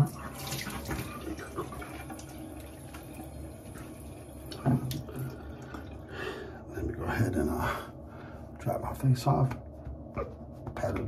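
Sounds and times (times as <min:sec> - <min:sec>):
tap water running into sink: 0:00.0 - 0:06.0
water splashing on face: 0:04.5 - 0:05.8.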